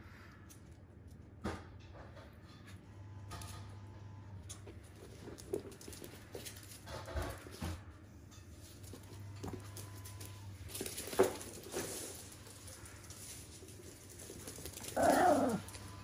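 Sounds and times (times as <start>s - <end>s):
dog paws pattering on floor: 4.5s - 16.0s.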